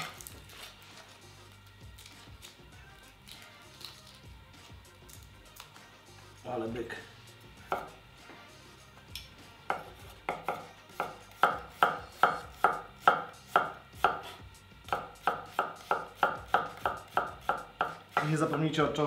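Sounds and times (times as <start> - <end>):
knife chopping on wooden board: 7.7 - 8.0, 9.7 - 18.7.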